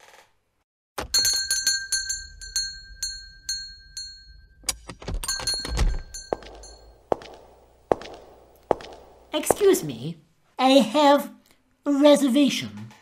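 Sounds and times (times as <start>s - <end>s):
service bell ringing: 1.0s - 7.1s.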